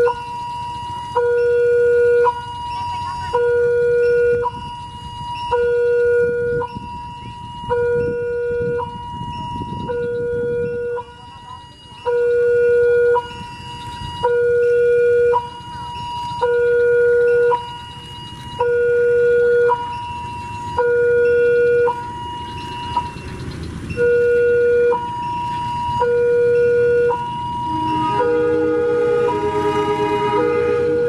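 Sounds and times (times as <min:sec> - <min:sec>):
diesel locomotive rumble: 0:00.0 - 0:31.0
two-tone electronic alarm: 0:00.0 - 0:31.0.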